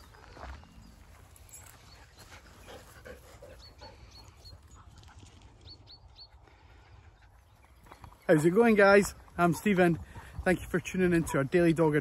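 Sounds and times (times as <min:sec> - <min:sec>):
paws rustling through grass: 0:00.0 - 0:06.4
dogs panting: 0:01.3 - 0:11.5.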